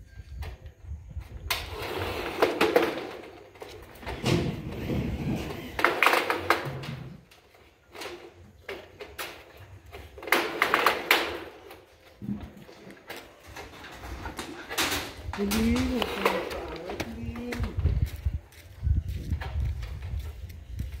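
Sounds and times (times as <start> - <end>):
metal roofing sheet clanking: 1.7 - 7.2, 10.1 - 17.6.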